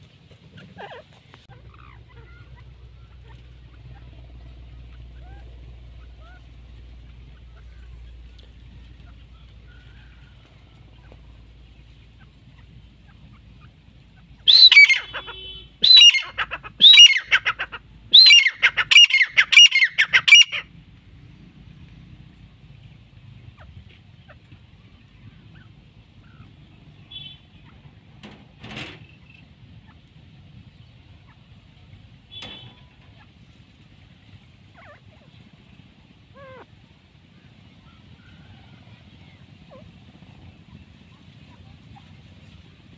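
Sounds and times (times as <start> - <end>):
steady low rumble: 0.0 - 14.5
soft wavering bird calls: 0.5 - 20.7, 23.4 - 28.0, 30.7 - 42.6
francolin calling: 14.2 - 20.6.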